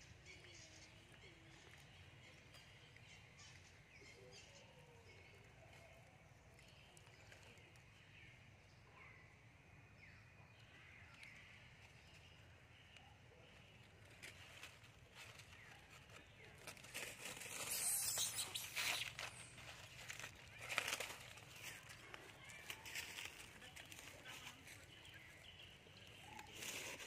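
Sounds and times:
dry leaves crackling and rustling: 13.5s - 27.0s
faint high chirps: 16.7s - 21.8s.

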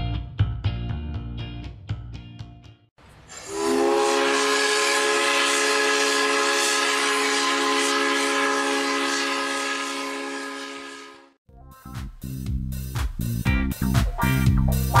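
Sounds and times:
steam hissing: 3.0s - 11.1s
steam whistle chord: 3.3s - 11.4s
guitar music: 13.5s - 15.0s.

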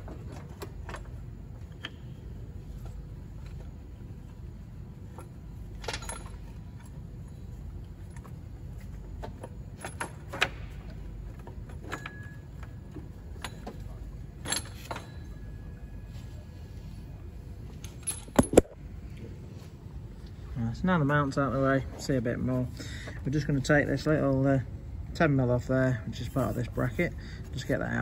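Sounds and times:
low steady hum: 0.0s - 28.0s
metallic clinks of tools and bolts: 5.8s - 6.9s, 11.7s - 15.6s, 17.8s - 18.7s.

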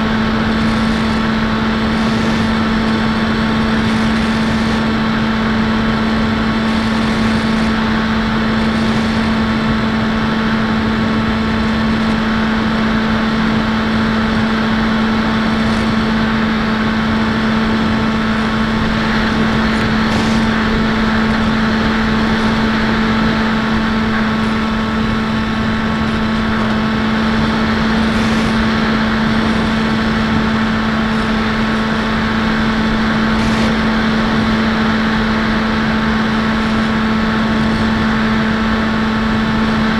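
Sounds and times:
electric motor and propeller drone: 0.0s - 39.9s
wind rushing over microphone: 0.0s - 39.9s.

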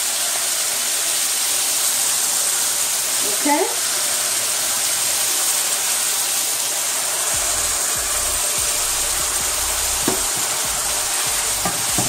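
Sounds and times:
water sizzling in a hot frying pan: 0.0s - 12.0s
spatula knocking on pan: 9.4s - 10.8s, 11.6s - 12.0s.

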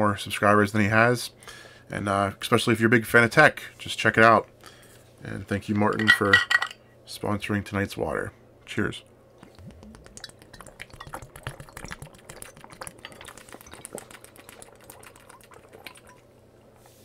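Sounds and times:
man gulping water: 9.4s - 16.3s.

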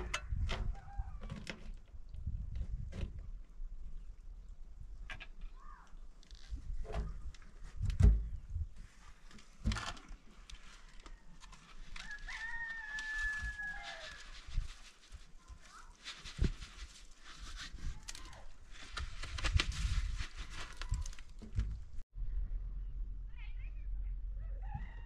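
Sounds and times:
rooster crowing: 12.0s - 14.2s, 24.4s - 25.0s.

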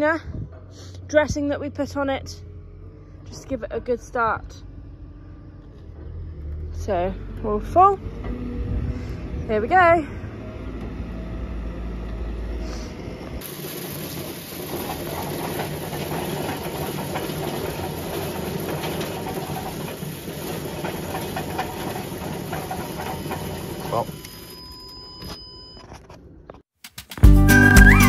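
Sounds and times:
seed drill mechanical clatter: 12.1s - 24.6s.

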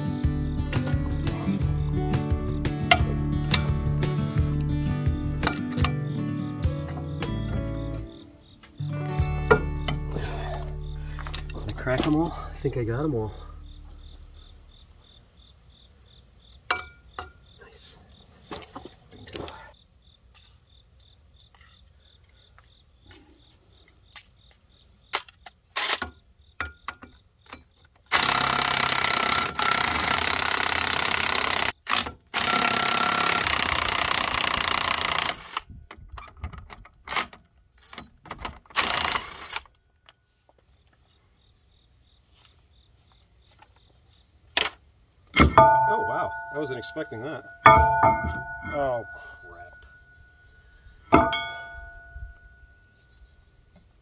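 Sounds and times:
metal clinks of bolts and tools: 5.4s - 6.1s, 9.5s - 12.6s, 16.7s - 17.4s, 25.1s - 27.7s, 45.4s - 52.8s
impact wrench hammering: 16.7s - 17.3s, 45.4s - 50.0s, 51.1s - 52.1s.

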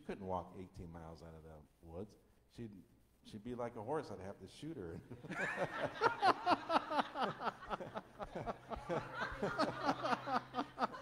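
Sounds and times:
man laughing into a microphone: 5.2s - 11.0s.

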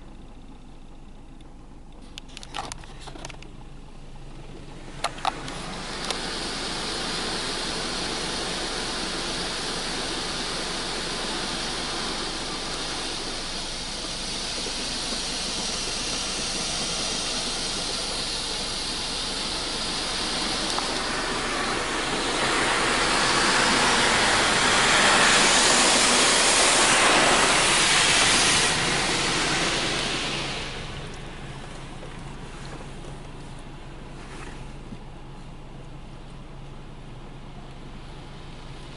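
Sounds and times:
water spray hitting car: 4.8s - 35.0s.

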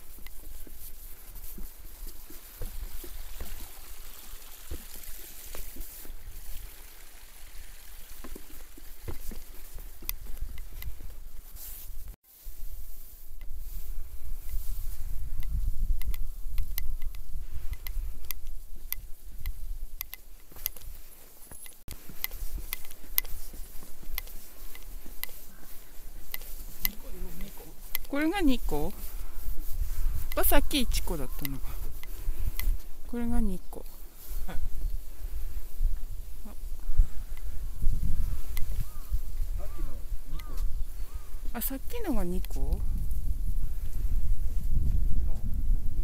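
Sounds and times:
wind rumbling on microphone: 0.0s - 21.2s, 21.9s - 46.0s
footsteps on trail and boardwalk: 0.0s - 46.0s
water trickling: 1.8s - 10.7s.

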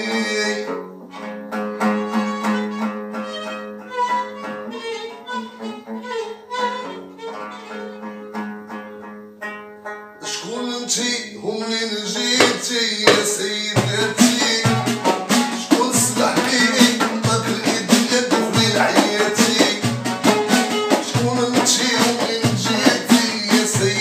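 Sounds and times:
plucked lute: 0.0s - 24.0s
violin bowing a melody: 0.6s - 9.1s, 18.4s - 22.4s
hand drum strokes: 12.4s - 24.0s.

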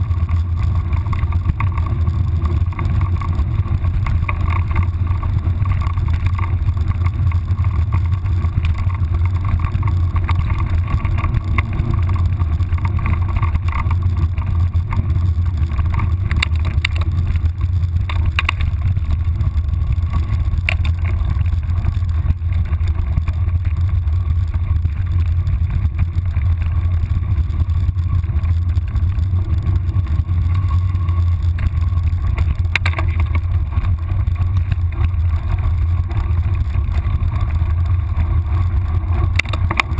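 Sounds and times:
sharp clicks: 0.3s - 19.3s.

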